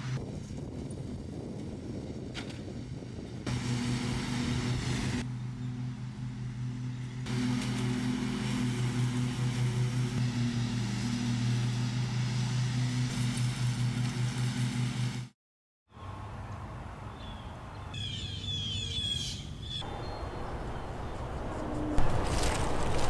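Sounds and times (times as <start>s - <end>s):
riding mower engine running: 0.8s - 15.4s.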